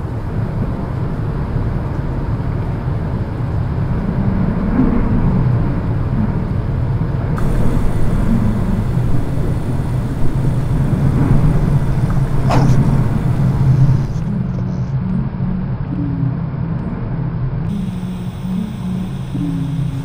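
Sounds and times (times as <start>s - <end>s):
brief hiss: 7.4s - 14.3s, 17.7s - 20.0s.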